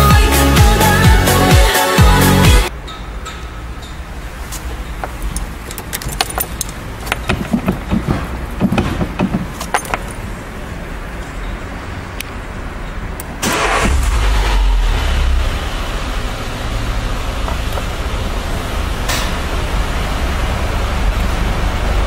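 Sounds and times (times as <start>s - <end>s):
car keys jangling: 5.0s - 10.3s.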